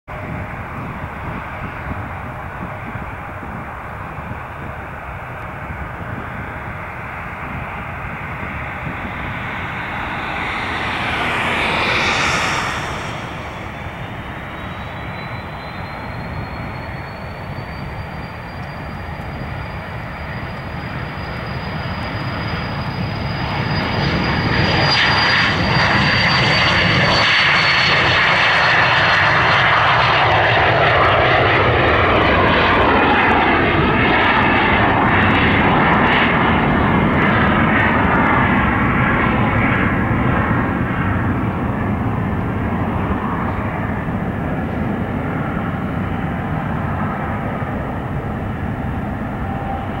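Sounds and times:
jet engine whine: 0.1s - 50.0s
loud jet rush: 6.1s - 17.0s.

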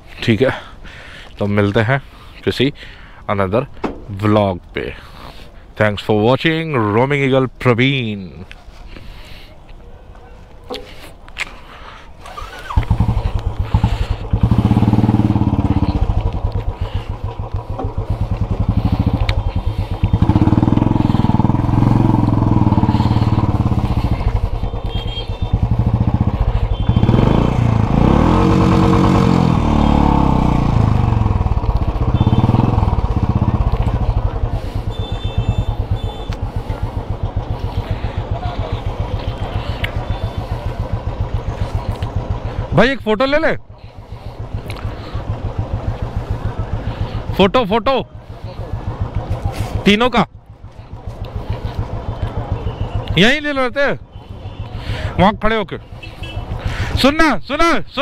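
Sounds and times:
tyres over dirt ground: 3.4s - 4.9s, 7.8s - 43.1s
motorcycle engine revving: 12.2s - 43.0s, 43.8s - 53.4s.

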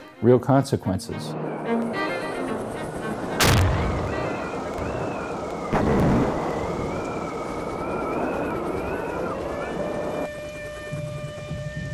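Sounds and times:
wavering high-pitched drone: 1.1s - 11.9s
deep boom with rumbling tail: 3.4s - 4.1s, 5.7s - 6.8s.

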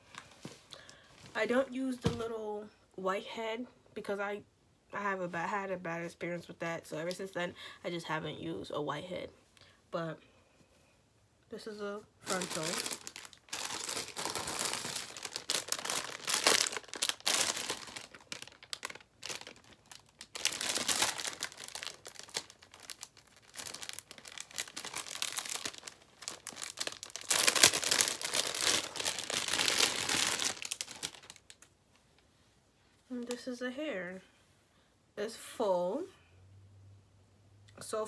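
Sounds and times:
plastic packaging crinkling: 12.2s - 31.7s.

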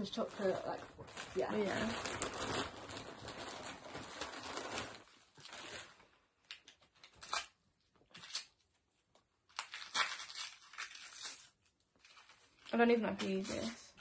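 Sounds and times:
plastic bag rustling: 0.0s - 6.2s
wrapping paper crinkling and tearing: 0.0s - 14.0s.

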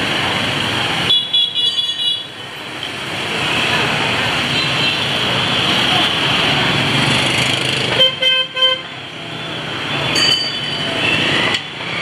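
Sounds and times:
street traffic: 0.0s - 12.0s
motorbike engines running: 2.3s - 8.1s.

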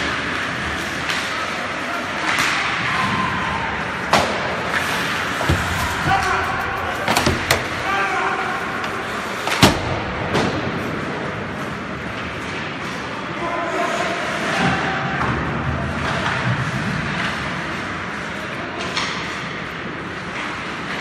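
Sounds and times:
hockey sticks clacking: 0.0s - 3.2s, 4.0s - 13.1s
players shouting: 2.0s - 9.3s
skate blades scraping ice: 4.5s - 9.6s.

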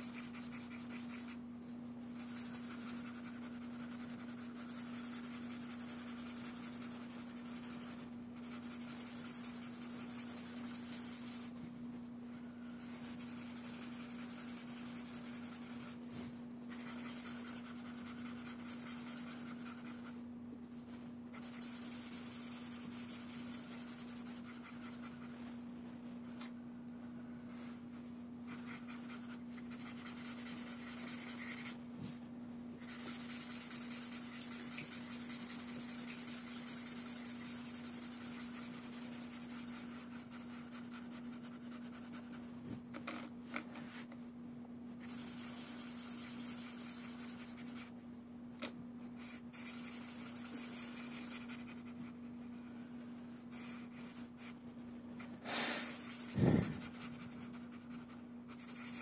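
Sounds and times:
marker scratching on paper: 0.0s - 1.4s, 2.2s - 11.5s, 12.8s - 16.0s, 16.7s - 20.1s, 21.3s - 25.4s, 28.5s - 31.8s, 32.8s - 42.4s, 45.0s - 47.9s, 49.2s - 54.6s, 55.2s - 59.0s
steady low hum: 0.0s - 59.0s
loud knock: 56.4s - 56.8s.

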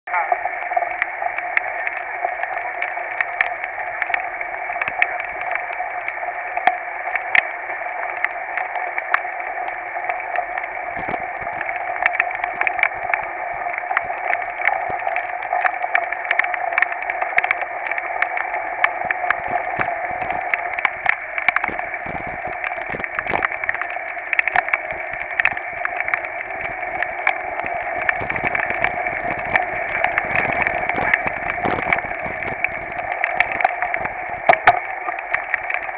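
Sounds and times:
bike tyres hissing on wet trail: 18.0s - 35.9s
sharp ticks and knocks: 18.2s - 35.5s.

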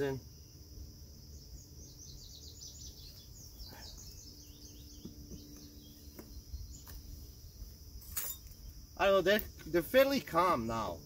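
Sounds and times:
honeybees buzzing: 0.0s - 8.0s
high-pitched insect trill: 0.0s - 11.0s
songbird chirping: 0.0s - 11.0s.

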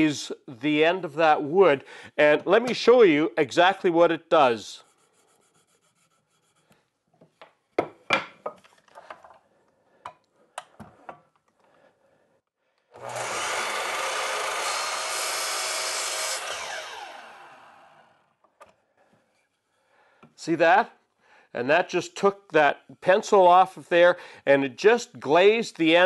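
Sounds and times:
saw blade winding down: 12.9s - 18.2s
miter saw running: 13.0s - 18.1s.

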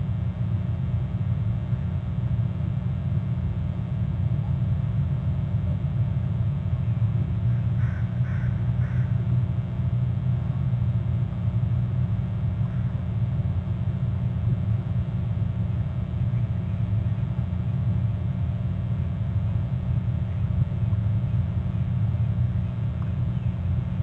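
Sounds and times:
short bird calls: 7.5s - 9.1s.

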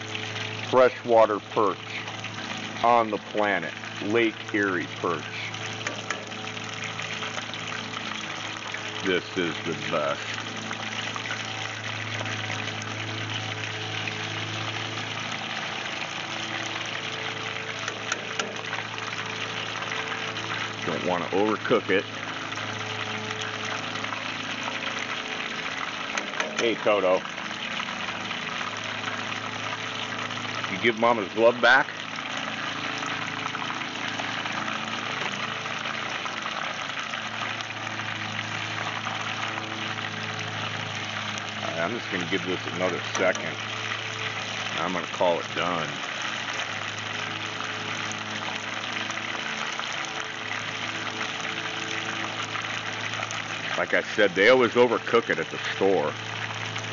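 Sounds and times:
fish deep-frying in oil: 0.0s - 56.9s
low steady hum: 0.0s - 56.9s.

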